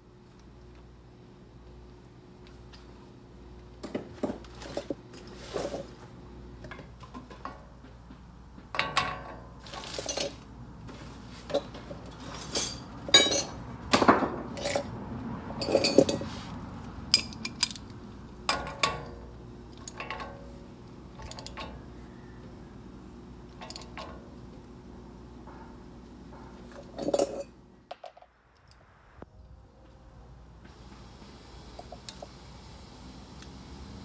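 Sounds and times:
metal tools clinking: 0:08.8 - 0:10.4, 0:11.5 - 0:13.6, 0:14.5 - 0:15.0, 0:15.6 - 0:16.3, 0:17.1 - 0:19.2, 0:19.8 - 0:20.6, 0:21.2 - 0:21.8, 0:23.6 - 0:24.2, 0:26.7 - 0:28.3.

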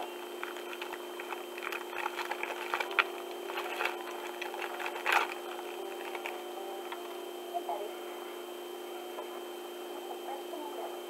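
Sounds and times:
plastic bag crinkling: 0:00.3 - 0:07.1.

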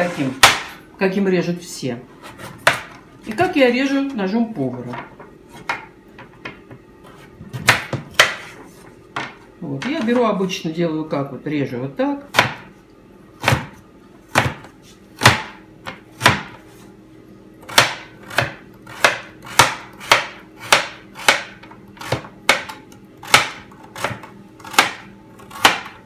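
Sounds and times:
knife chopping on plastic board: 0:00.4 - 0:00.8, 0:02.2 - 0:03.0, 0:07.2 - 0:08.6, 0:12.3 - 0:12.7, 0:13.4 - 0:16.6, 0:17.7 - 0:26.0.

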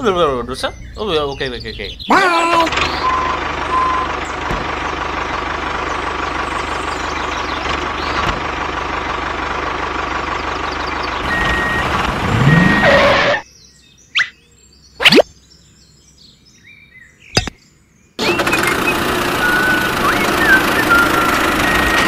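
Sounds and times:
vehicle motor whining: 0:02.7 - 0:13.4, 0:18.2 - 0:22.0
short beeps: 0:11.3 - 0:13.4.

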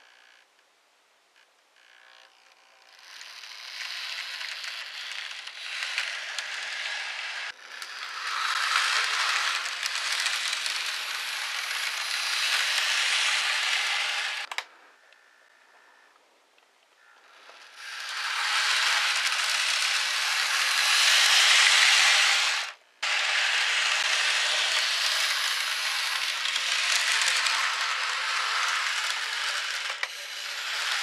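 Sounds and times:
model train rattling on track: 0:02.9 - 0:14.6, 0:17.5 - 0:31.0.

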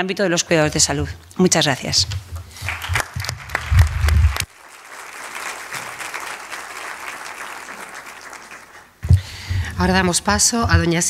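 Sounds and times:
audience applause: 0:02.6 - 0:09.2.

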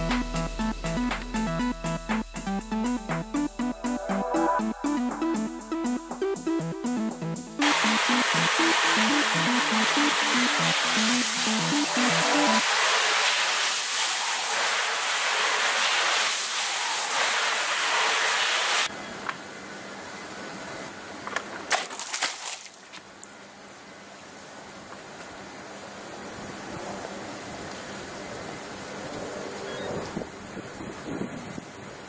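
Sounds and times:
water jets spraying hard: 0:07.6 - 0:18.9.

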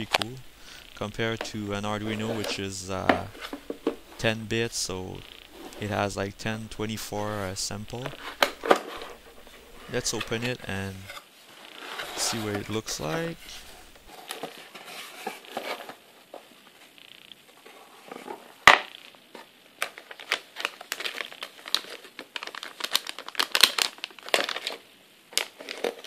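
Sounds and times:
plastic bag crinkling: 0:19.8 - 0:26.0.

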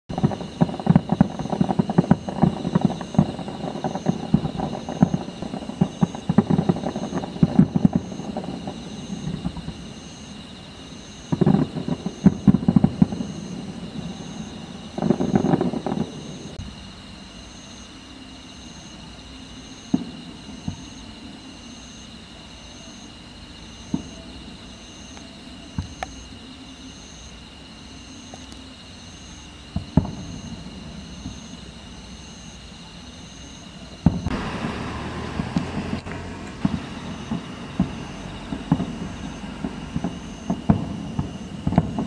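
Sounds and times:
distant fireworks booming: 0:00.1 - 0:16.8, 0:19.9 - 0:21.1, 0:23.8 - 0:24.4, 0:29.7 - 0:32.6, 0:33.9 - 0:42.0
insects chirping: 0:00.1 - 0:42.0.

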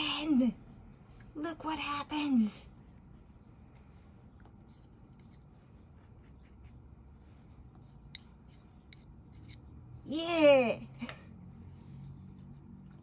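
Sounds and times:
woman exclaiming: 0:10.1 - 0:10.9.

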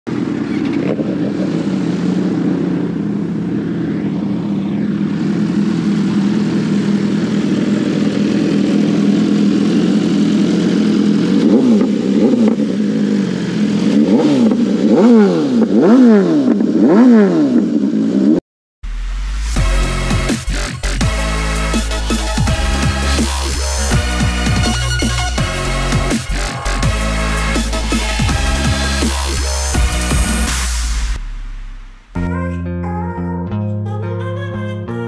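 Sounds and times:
motorcycle engine idling: 0:00.1 - 0:16.0.

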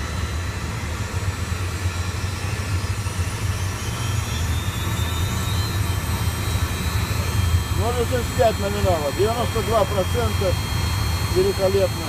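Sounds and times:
jet engine low rumble: 0:00.0 - 0:12.0
jet engine whine: 0:00.0 - 0:12.0.

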